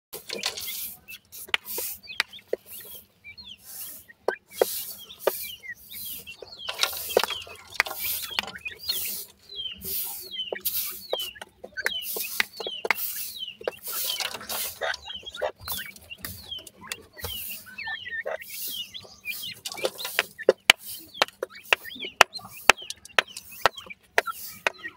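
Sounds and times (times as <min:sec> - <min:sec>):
chicks peeping: 0:00.2 - 0:24.9
dirt rustling scrapes: 0:04.6 - 0:11.1, 0:13.0 - 0:15.9
sharp pecking clicks: 0:06.2 - 0:24.9.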